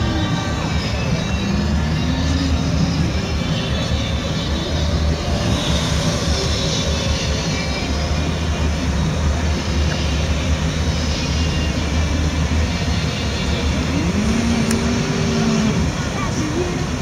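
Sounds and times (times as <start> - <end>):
car engines rumbling: 0.0 - 17.0.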